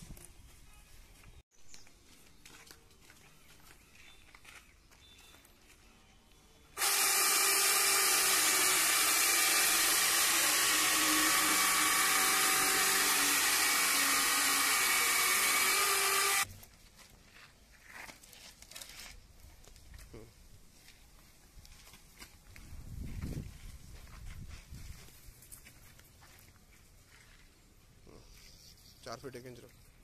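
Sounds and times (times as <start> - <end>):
electric chainsaw cutting log: 6.8 - 16.5.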